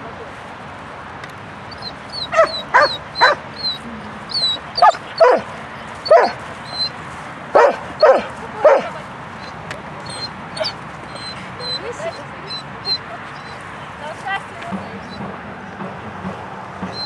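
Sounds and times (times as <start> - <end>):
dog barking excitedly: 1.8 - 6.9, 7.5 - 9.0.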